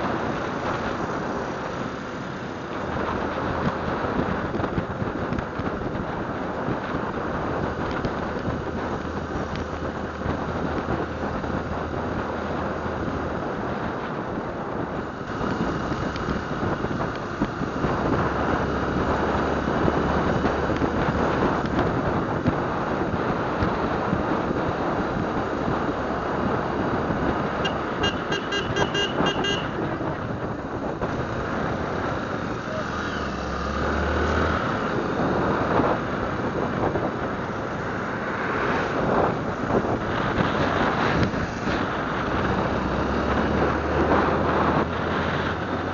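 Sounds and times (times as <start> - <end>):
motorcycle engine hum: 0.0 - 45.9
wind rushing over microphone: 0.0 - 45.9
vehicle horn short beeps: 27.6 - 29.8.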